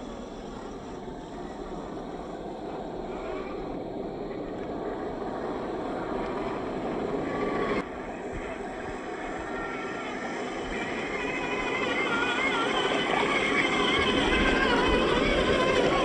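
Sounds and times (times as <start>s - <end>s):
toy truck motor: 6.1s - 16.0s.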